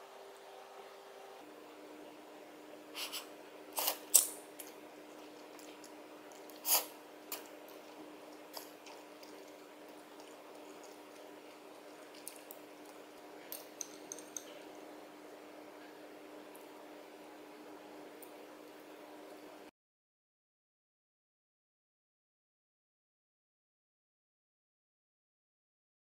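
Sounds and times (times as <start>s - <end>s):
faint steady hum: 0.0s - 19.7s
soft mouth and utensil noises: 3.0s - 14.8s
chopsticks clicking on dishes: 12.2s - 14.6s.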